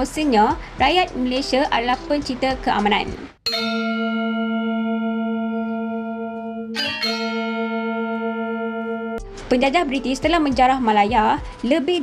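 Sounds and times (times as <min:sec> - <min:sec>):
deep bell-like chime: 0:03.5 - 0:09.2.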